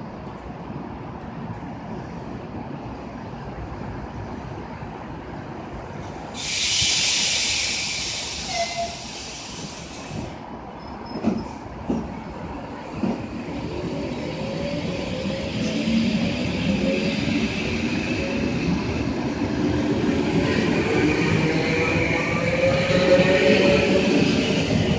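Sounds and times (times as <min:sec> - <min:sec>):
air hissing: 0:06.4 - 0:10.4.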